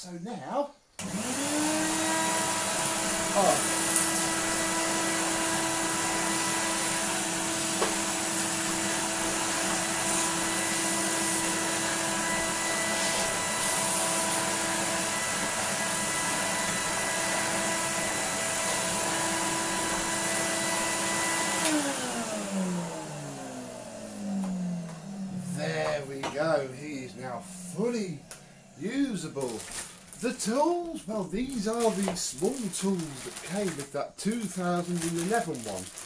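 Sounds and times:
vacuum cleaner running: 1.0 - 33.8
floor tool pushed over rug: 2.8 - 14.5.

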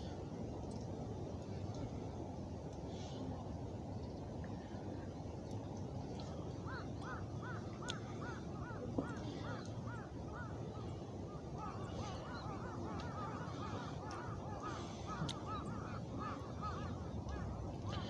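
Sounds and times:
low background hiss: 0.0 - 18.0
flock of birds calling: 6.6 - 18.0.

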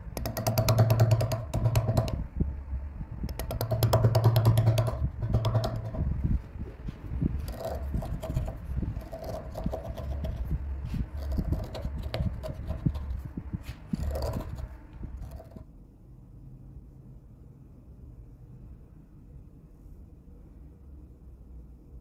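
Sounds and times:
gouge carving wood: 0.2 - 2.2, 3.3 - 6.2, 7.4 - 13.2, 13.8 - 15.6
tool knocking against wood: 0.2 - 2.3, 3.3 - 6.2, 7.5 - 10.5, 11.2 - 13.2, 14.0 - 15.6.

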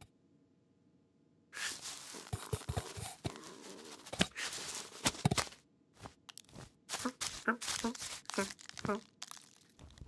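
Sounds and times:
cloth sack rustling: 1.6 - 9.0.

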